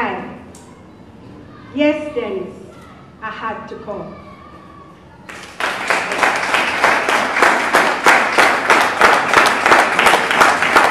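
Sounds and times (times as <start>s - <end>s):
audience applause: 5.3s - 10.9s.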